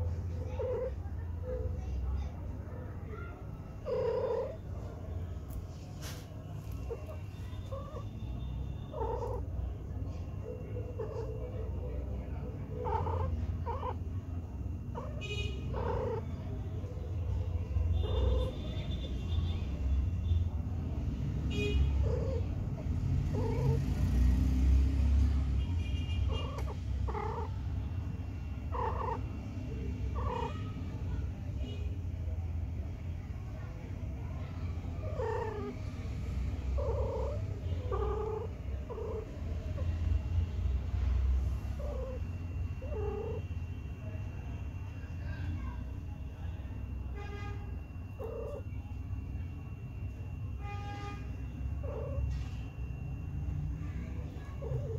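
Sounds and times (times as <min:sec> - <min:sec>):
cat purring: 0:00.0 - 0:01.8, 0:02.6 - 0:19.0, 0:21.9 - 0:25.6, 0:26.3 - 0:31.4, 0:33.6 - 0:44.9, 0:47.8 - 0:48.7, 0:51.6 - 0:53.2, 0:54.1 - 0:54.9.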